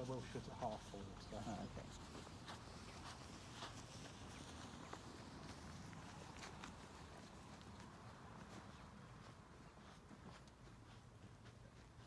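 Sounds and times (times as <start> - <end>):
footsteps on gravel: 0.0 - 12.0.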